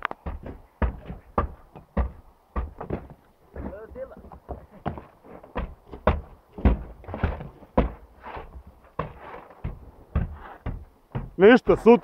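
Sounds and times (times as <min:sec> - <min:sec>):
snow shovel scraping frozen snow: 0:09.1 - 0:09.6.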